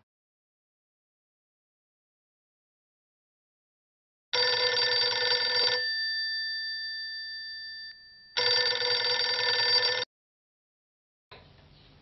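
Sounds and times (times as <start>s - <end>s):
telephone bell ringing: 4.4s - 10.1s.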